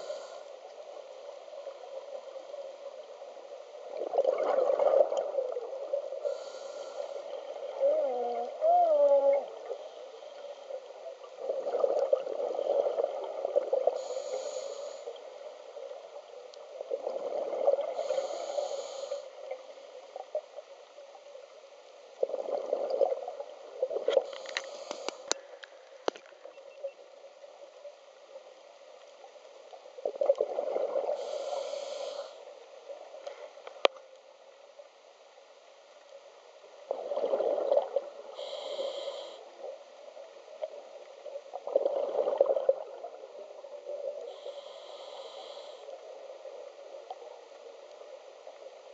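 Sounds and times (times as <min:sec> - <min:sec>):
regulator hiss: 0:00.0 - 0:00.6, 0:06.2 - 0:07.3, 0:14.0 - 0:15.1, 0:18.0 - 0:19.4, 0:24.3 - 0:25.3, 0:31.2 - 0:32.5, 0:38.4 - 0:39.4, 0:44.3 - 0:46.0
underwater exhaled bubbles gurgling: 0:01.5 - 0:16.1, 0:16.7 - 0:20.3, 0:22.2 - 0:25.4, 0:30.0 - 0:33.1, 0:36.8 - 0:39.3, 0:40.6 - 0:47.3
faint clicks: 0:16.4 - 0:17.5, 0:24.0 - 0:27.2, 0:33.2 - 0:34.3.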